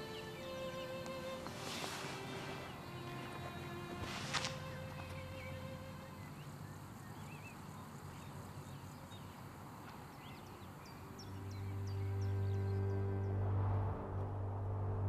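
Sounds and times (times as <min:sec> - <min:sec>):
low held music drone: 0:00.0 - 0:07.3, 0:10.4 - 0:15.0.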